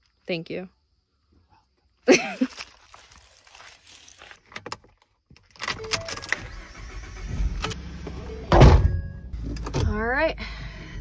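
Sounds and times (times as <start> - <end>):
truck engine starting: 5.6 - 10.8.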